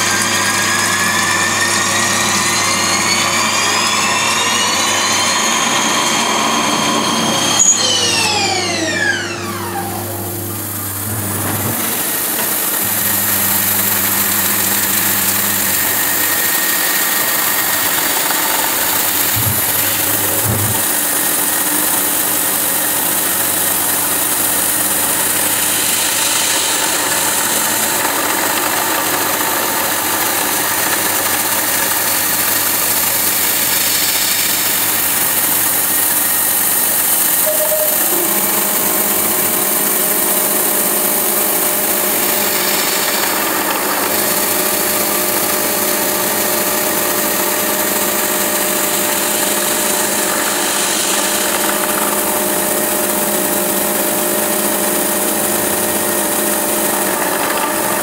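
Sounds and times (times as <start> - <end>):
steady machine tone: 0.0 - 22.9, 36.1 - 51.2
milling machine cutting metal: 0.0 - 58.0.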